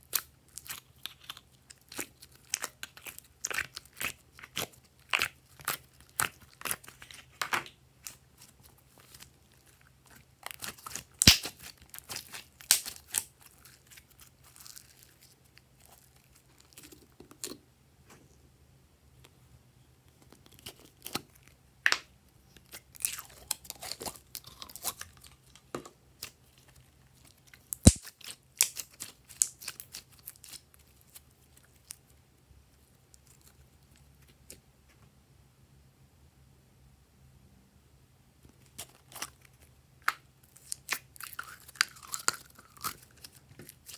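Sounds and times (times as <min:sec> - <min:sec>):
slime crackling in plastic containers: 0:00.0 - 0:17.7, 0:20.2 - 0:32.1, 0:38.5 - 0:43.9.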